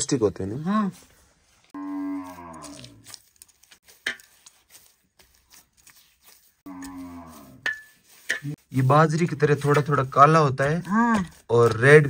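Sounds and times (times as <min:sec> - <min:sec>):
cow mooing: 0:01.8 - 0:03.0, 0:06.6 - 0:07.6
hands kneading dough: 0:02.3 - 0:12.0.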